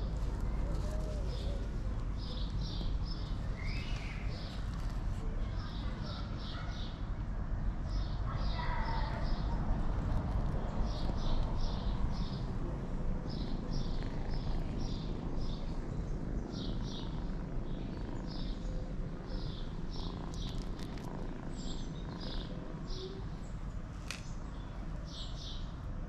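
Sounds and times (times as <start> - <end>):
small bird chirping: 0.0 - 7.0, 13.3 - 25.8
steady low rumble: 9.0 - 25.1.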